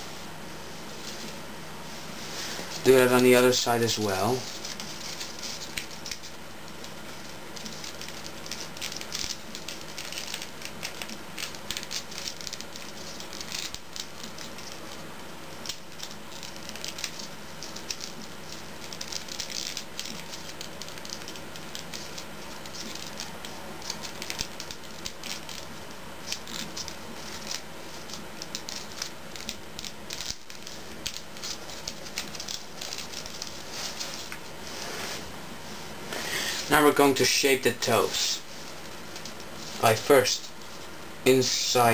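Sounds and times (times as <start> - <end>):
paper crinkling and rustling: 4.1 - 35.2.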